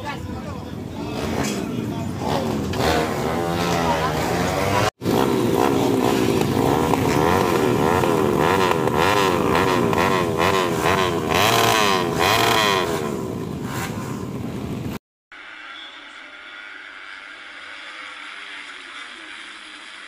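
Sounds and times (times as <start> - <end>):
motorcycle engine revving: 0.8 - 15.0.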